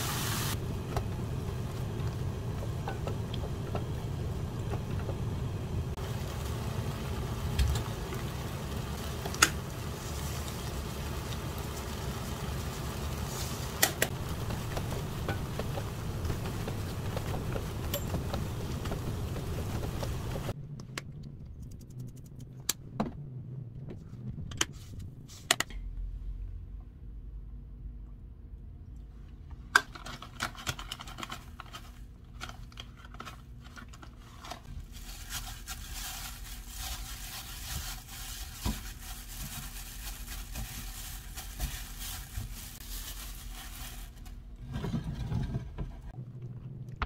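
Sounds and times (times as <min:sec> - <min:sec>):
low stove rumble: 0:00.0 - 0:20.6
stir-frying in a pan: 0:00.0 - 0:20.6, 0:34.8 - 0:44.2.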